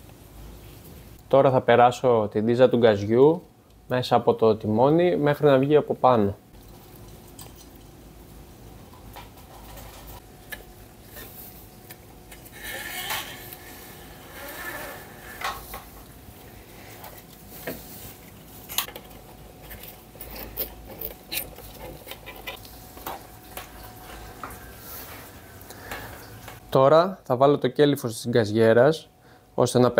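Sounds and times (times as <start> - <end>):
metallic cable clicks and scraping: 18.7 - 23.7.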